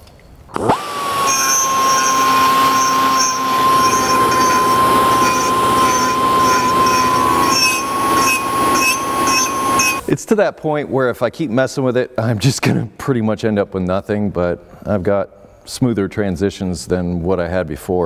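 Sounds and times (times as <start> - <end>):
die grinder high whine: 0.5 - 10.1.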